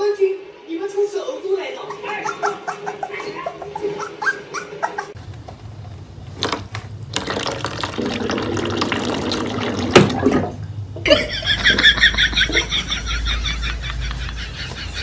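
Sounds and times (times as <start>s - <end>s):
water splashing into tray: 7.1s - 10.6s.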